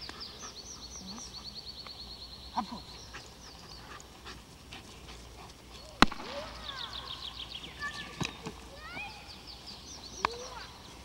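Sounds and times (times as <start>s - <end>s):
small birds singing: 0.0s - 11.0s.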